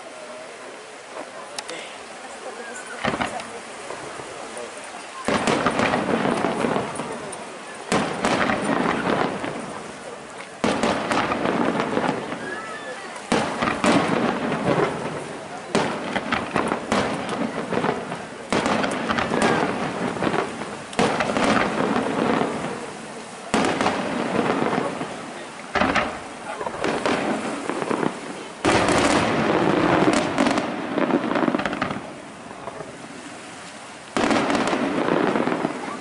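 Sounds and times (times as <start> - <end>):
firework shells bursting: 3.0 - 4.2, 5.2 - 12.5, 13.2 - 33.0.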